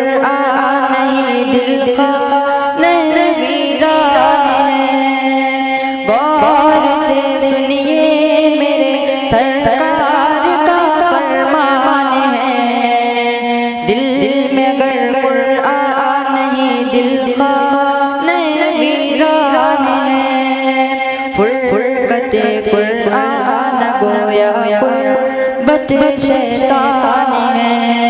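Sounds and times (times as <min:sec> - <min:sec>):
young man singing: 0:00.0 - 0:28.0.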